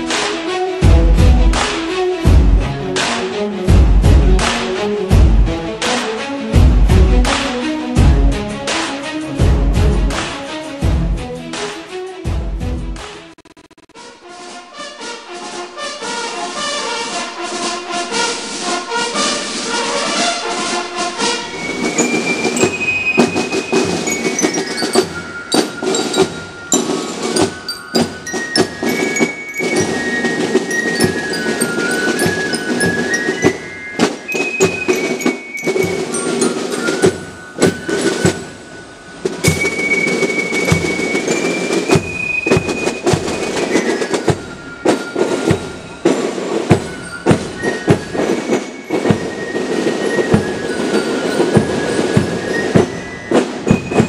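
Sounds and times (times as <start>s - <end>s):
brass band music: 0.0s - 54.0s
snare drum rolls and beats: 0.0s - 54.0s
fife melody: 13.9s - 54.0s.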